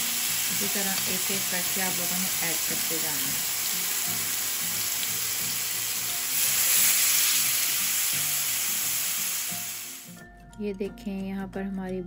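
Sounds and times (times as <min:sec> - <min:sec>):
chicken sizzling in hot oil: 0:00.0 - 0:10.1.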